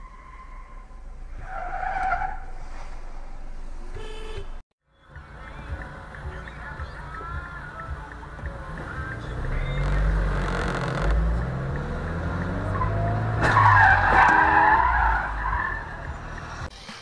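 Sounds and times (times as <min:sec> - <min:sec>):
tyres squealing in skid: 0:00.0 - 0:02.9, 0:12.7 - 0:16.0
car engine revving: 0:08.4 - 0:16.7.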